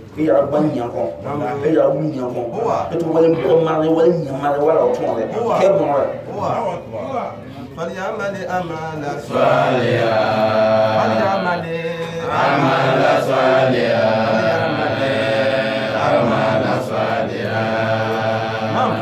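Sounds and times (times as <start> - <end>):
man chanting: 7.8 - 19.0.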